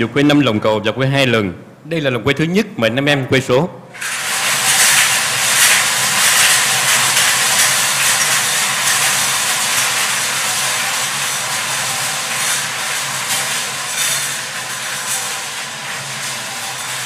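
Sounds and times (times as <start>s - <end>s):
balls rattling in wire cages: 4.0s - 17.0s.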